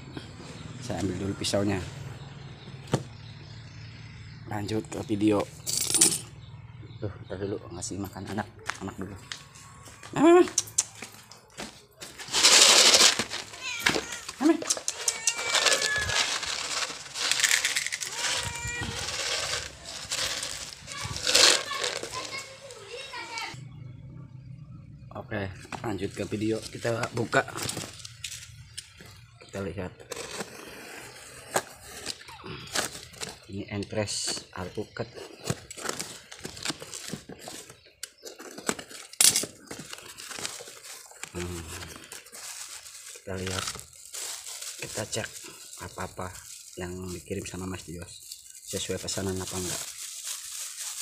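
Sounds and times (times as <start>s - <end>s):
dry cat food rattling into bowl: 12.2s - 22.7s
packing tape tearing: 12.2s - 22.8s
cat meowing: 13.6s - 16.2s, 18.0s - 19.1s.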